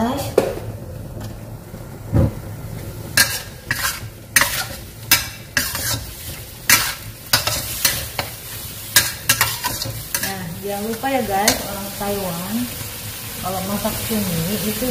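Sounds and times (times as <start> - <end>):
food sizzling: 0.0 - 14.9
metal spatula scraping a wok: 3.2 - 12.0.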